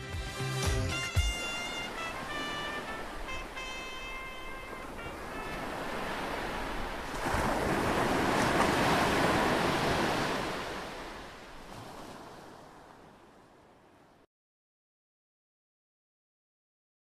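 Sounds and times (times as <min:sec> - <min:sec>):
music: 0:00.0 - 0:05.6.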